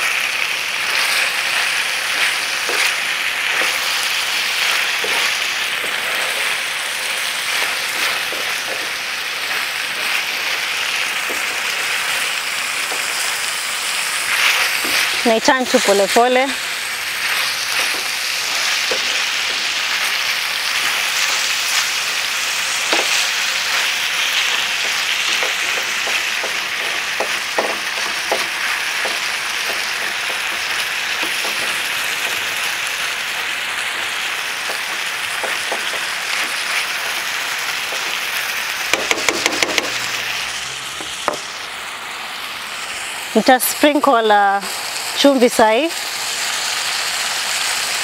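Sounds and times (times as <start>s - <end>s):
meat sizzling in a frying pan: 0.0s - 48.0s
turner scraping a pan: 0.8s - 41.6s.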